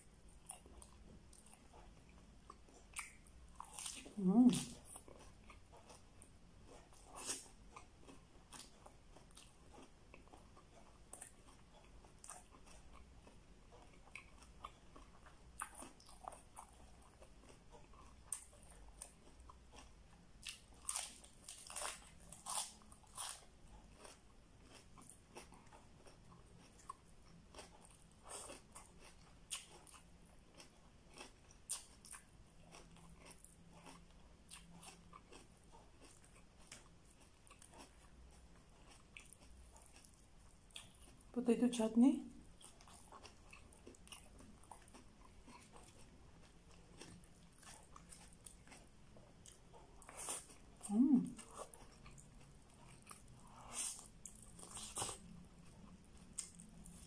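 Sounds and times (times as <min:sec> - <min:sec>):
person chewing food: 0:00.0 - 0:41.4, 0:42.3 - 0:57.0.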